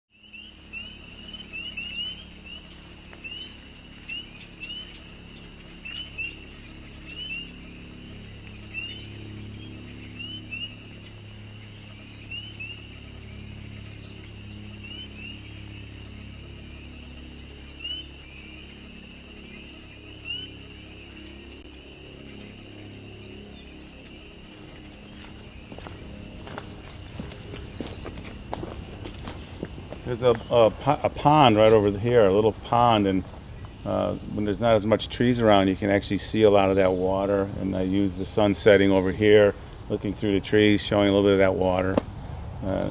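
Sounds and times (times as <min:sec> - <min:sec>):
low steady hum: 0:00.1 - 0:42.9.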